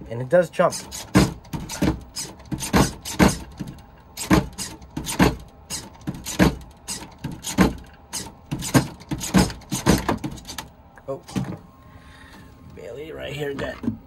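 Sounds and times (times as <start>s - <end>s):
servos whirring: 0.6s - 10.8s
sharp knocks: 1.0s - 7.9s, 8.5s - 10.5s.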